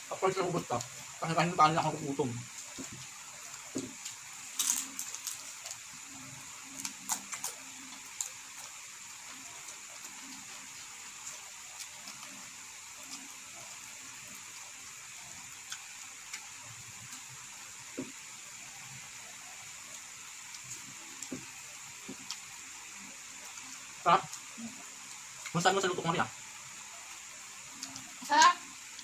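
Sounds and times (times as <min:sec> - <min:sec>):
steady hiss: 0:00.0 - 0:29.0
person chewing: 0:02.6 - 0:14.0, 0:15.5 - 0:17.3
fingers picking at crisp food: 0:06.7 - 0:08.8.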